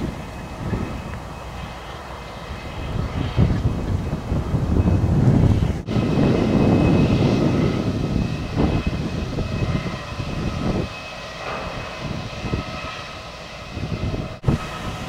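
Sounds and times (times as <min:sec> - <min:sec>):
faint high whine: 0:00.0 - 0:15.0
machinery drone: 0:00.0 - 0:15.0.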